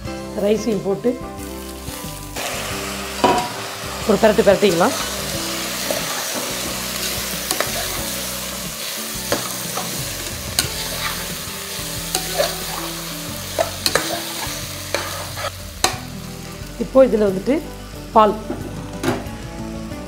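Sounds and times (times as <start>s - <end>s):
rice sizzling in a pot: 0.4s - 18.4s
spatula scraping a pot: 10.6s - 11.4s, 12.1s - 13.0s, 13.6s - 15.5s.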